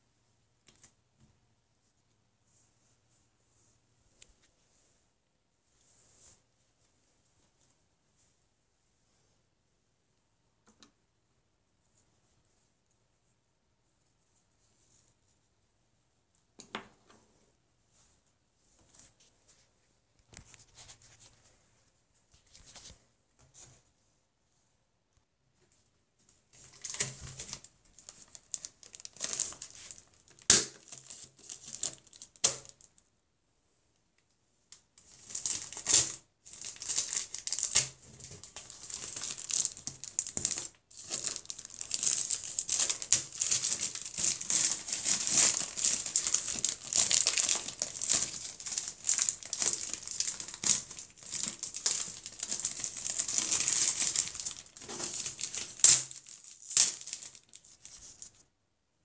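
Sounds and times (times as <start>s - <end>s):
plastic wrapping crinkling: 26.6s - 33.0s, 35.0s - 58.4s.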